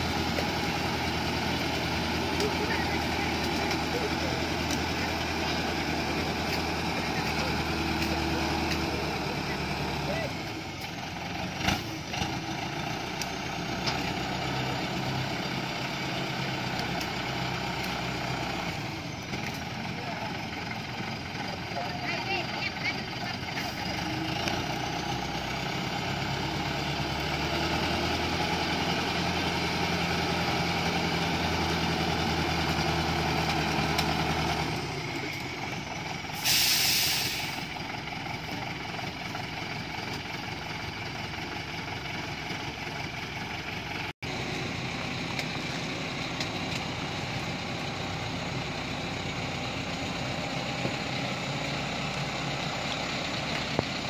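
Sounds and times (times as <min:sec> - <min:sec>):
diesel truck engine under load: 0:00.0 - 0:54.0
air brake hiss: 0:36.3 - 0:37.7.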